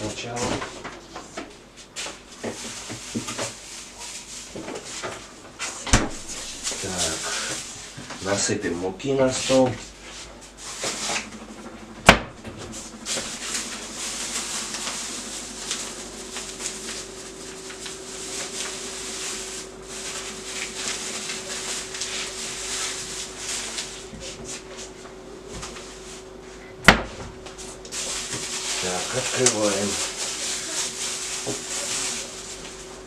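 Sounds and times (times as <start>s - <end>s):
plastic bag rustling: 6.1s - 8.4s, 12.7s - 26.1s, 27.5s - 33.0s.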